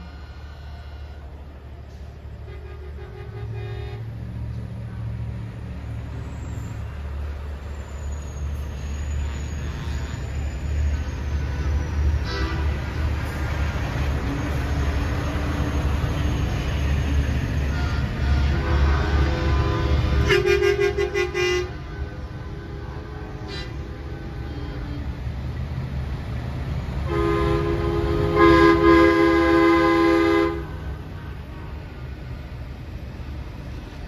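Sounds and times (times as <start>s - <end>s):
truck horns blowing: 0.0s - 1.6s, 2.3s - 4.2s, 11.4s - 13.3s, 17.5s - 25.2s, 27.0s - 31.8s
trucks rumbling past: 0.0s - 34.0s.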